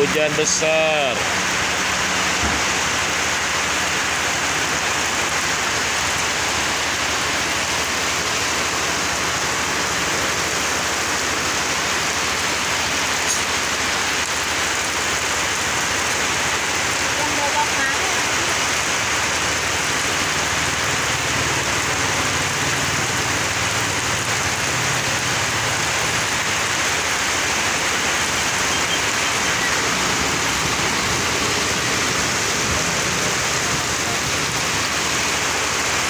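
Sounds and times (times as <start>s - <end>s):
heavy rain on asphalt: 0.0s - 36.0s.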